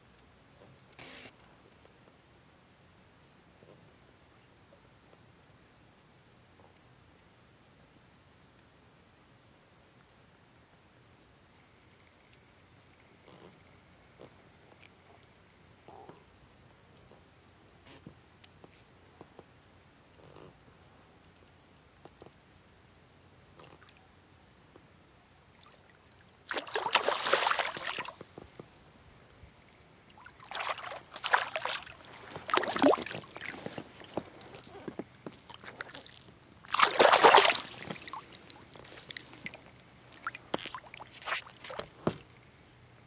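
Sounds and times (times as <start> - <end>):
fish splashing at water surface: 26.5 - 28.3, 30.2 - 42.0.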